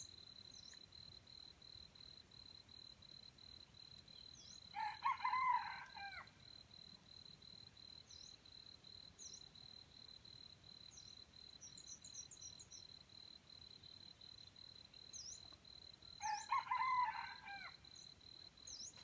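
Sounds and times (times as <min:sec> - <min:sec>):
small bird chirping: 0:00.0 - 0:00.9, 0:10.9 - 0:12.9, 0:15.0 - 0:15.6, 0:18.6 - 0:19.0
insect chirping: 0:00.0 - 0:19.0
rooster crowing: 0:04.7 - 0:06.3, 0:16.2 - 0:17.8.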